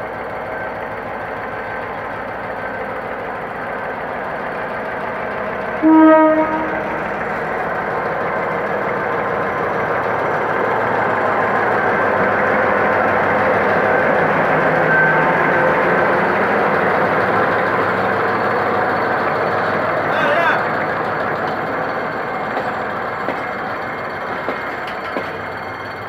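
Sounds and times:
locomotive engine running: 0.0s - 26.0s
locomotive horn blast: 5.8s - 7.0s.

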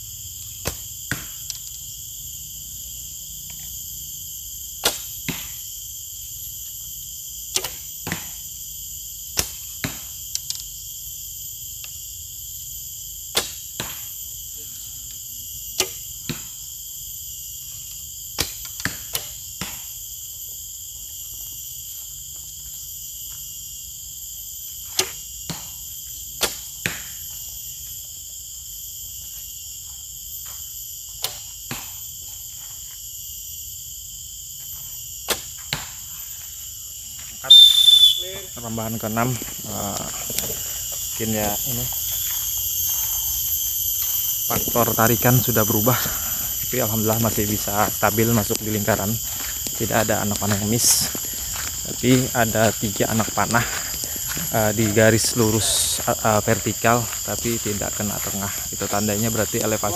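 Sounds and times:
insects chirring: 0.0s - 59.9s
arrow striking target: 0.6s - 1.4s, 4.8s - 5.6s, 7.5s - 8.4s, 24.9s - 25.8s, 26.4s - 27.1s, 35.2s - 36.0s.

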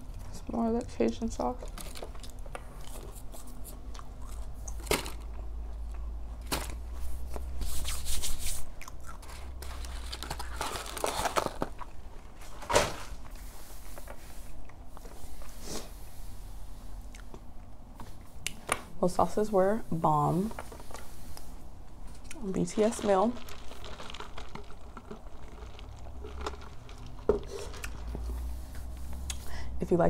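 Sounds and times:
person eating chicken nugget: 8.7s - 11.5s
cardboard box crinkling and rustling: 9.3s - 13.2s, 22.6s - 28.6s.

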